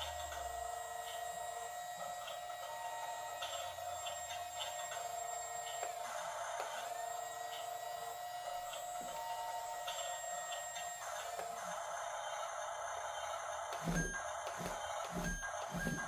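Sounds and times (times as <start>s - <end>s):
toy electric motors whining: 0.0s - 16.0s.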